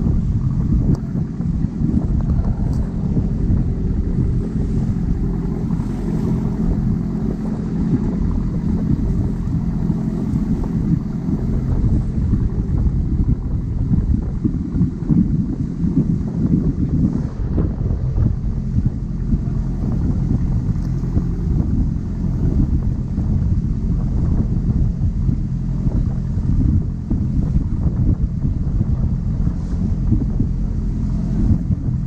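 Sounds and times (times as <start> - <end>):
boat engine running: 0.0 - 32.0
water splashing along hull: 0.0 - 32.0
wind buffeting microphone: 0.0 - 32.0.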